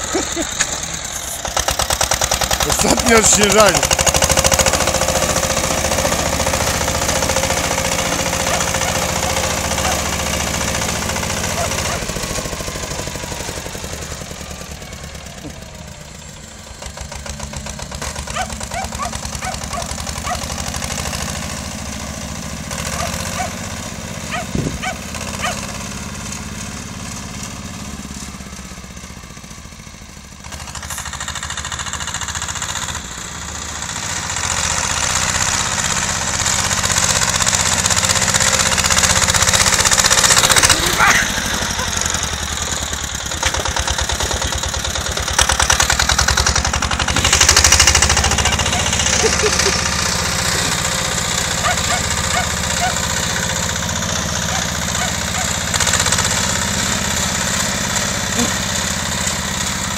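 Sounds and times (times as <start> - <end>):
small tractor engine running: 0.0 - 59.9.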